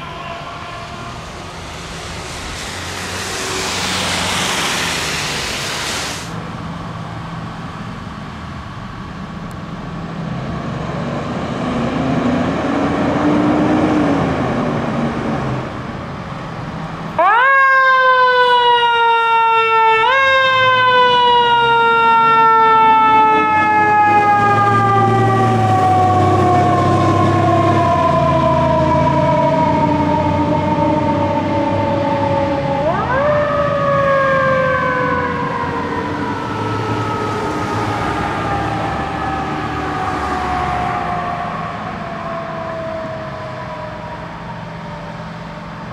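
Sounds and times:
mechanical siren wailing: 0.0s - 6.0s, 17.2s - 45.3s
fire engine motor running: 0.0s - 10.4s, 15.6s - 45.9s.

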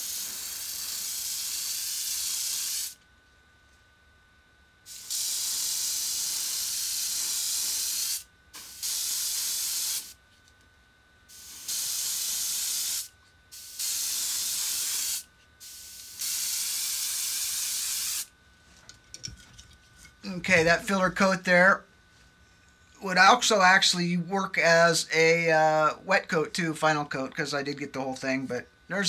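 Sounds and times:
airbrush hissing: 0.0s - 3.0s, 4.9s - 10.2s, 11.3s - 18.3s.

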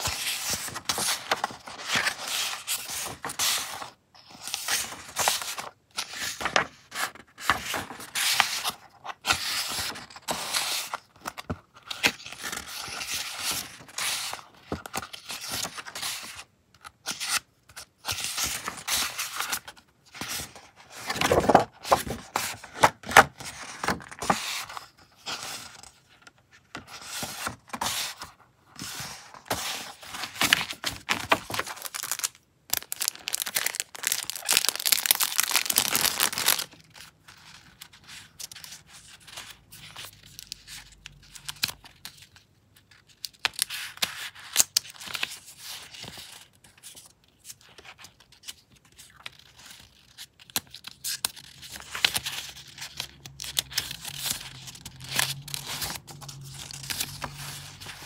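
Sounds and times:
paper rustling: 0.0s - 16.4s, 18.1s - 25.9s, 26.8s - 38.6s.

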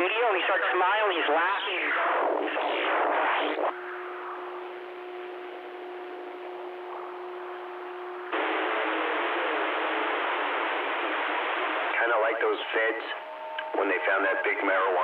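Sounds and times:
burst of radio static: 0.0s - 15.0s
radio channel hiss: 0.0s - 15.0s
steady low tone: 3.7s - 15.0s.

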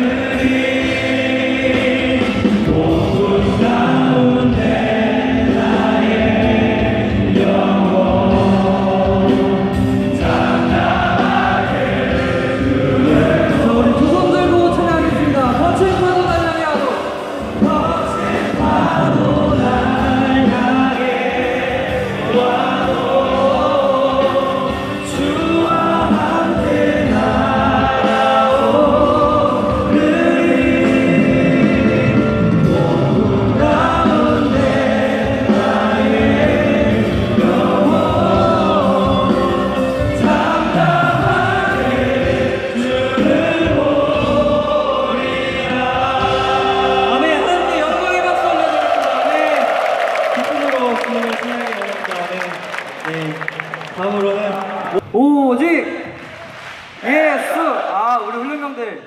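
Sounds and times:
person singing into a microphone: 0.0s - 15.9s, 17.4s - 47.7s
crowd singing: 0.0s - 51.8s
amplified worship music: 0.0s - 59.0s.

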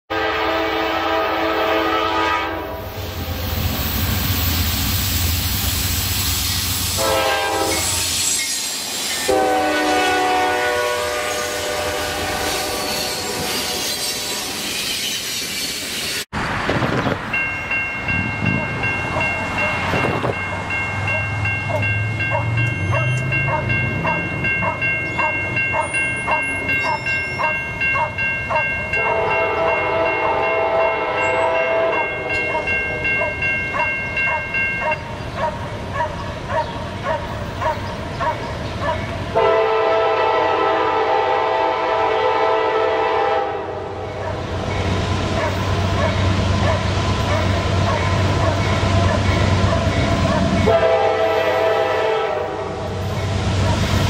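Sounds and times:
locomotive horn blasts: 0.1s - 2.9s, 7.0s - 8.0s, 9.2s - 13.8s, 28.5s - 33.1s, 39.3s - 44.2s, 50.6s - 53.0s
freight train rumbling and clattering: 2.7s - 54.0s
crossing warning bell ringing: 6.6s - 16.2s, 16.9s - 35.8s, 43.1s - 54.0s
steady warning tones: 17.3s - 36.5s.

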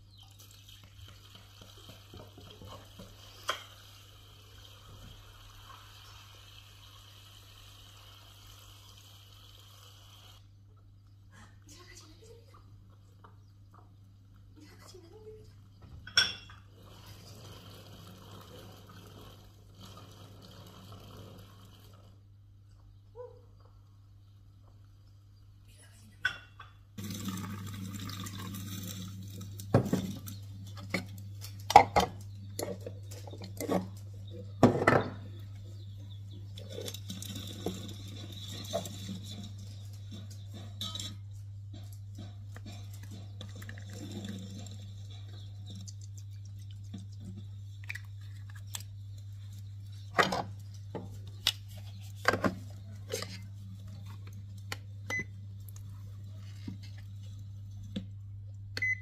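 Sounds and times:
water running: 0.0s - 10.5s, 16.1s - 22.2s, 27.0s - 41.2s, 42.4s - 59.0s
dishes and utensils clinking: 16.0s - 16.7s, 36.6s - 45.5s.

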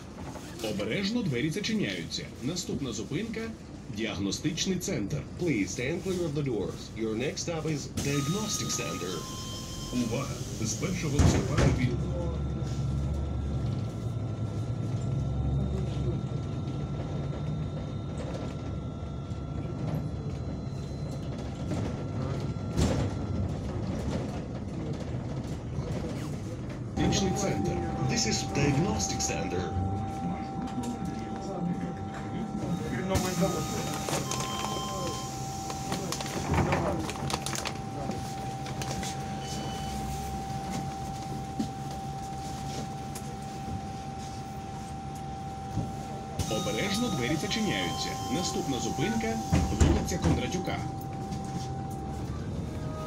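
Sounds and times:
bus engine and road rumble: 0.0s - 53.0s
thin high tone: 27.0s - 35.6s
faint high whine: 27.0s - 36.2s.

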